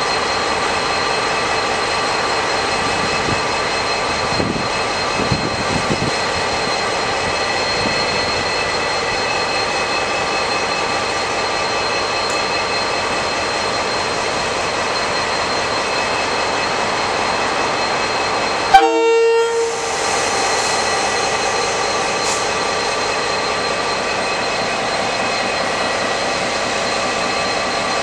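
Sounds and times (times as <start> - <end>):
diesel locomotive engine humming: 0.0 - 28.0
locomotive horn blast: 18.7 - 19.8.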